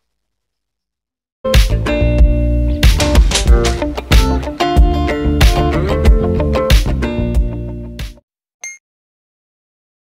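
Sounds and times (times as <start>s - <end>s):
intro music with deep bass: 1.6s - 7.9s.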